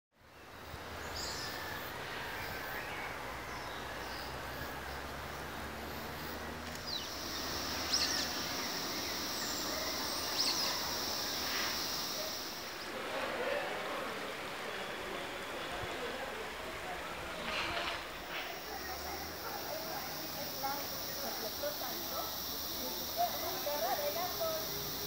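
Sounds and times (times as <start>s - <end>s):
background hiss: 0.2s - 25.0s
high insect drone: 0.4s - 13.0s, 18.2s - 25.0s
bird chirps: 6.4s - 12.8s.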